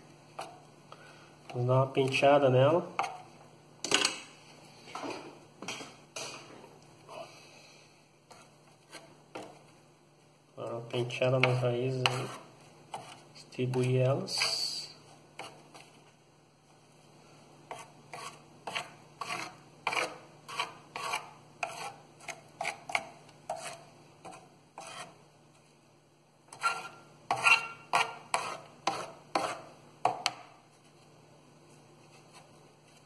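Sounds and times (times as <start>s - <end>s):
tool scratching soil: 11.5s - 14.7s, 24.8s - 25.1s.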